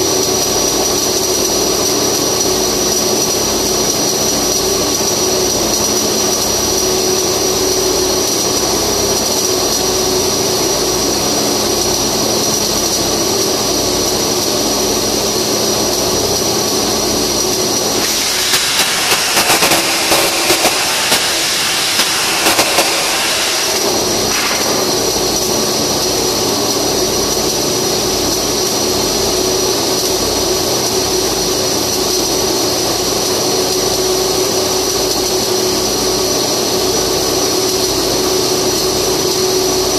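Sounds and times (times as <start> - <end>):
arc welding crackle: 0.0 - 39.9
steady mechanical drone: 0.0 - 39.9
welding pops: 17.4 - 25.8.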